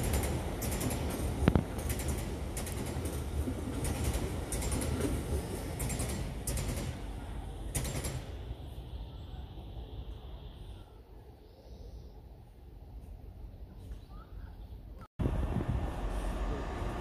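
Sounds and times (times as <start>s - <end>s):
wheels clicking over rail joints: 0.0s - 8.4s
freight wagons rumbling: 0.0s - 8.6s.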